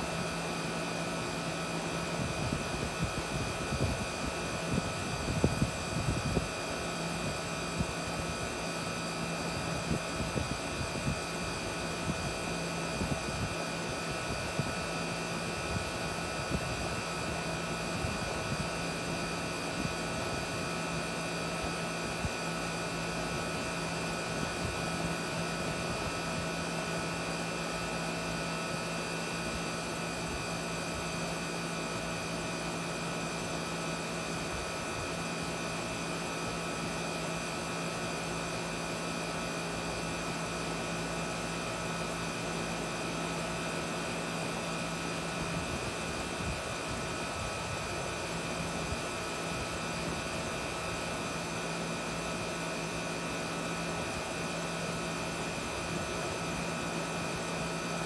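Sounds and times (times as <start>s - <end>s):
air conditioner hum: 0.0s - 58.0s
fan air rushing: 0.0s - 58.0s.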